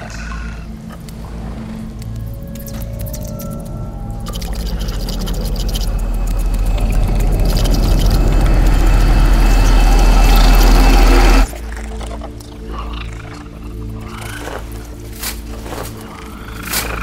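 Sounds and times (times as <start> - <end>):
deep noisy riser: 2.7 - 11.5.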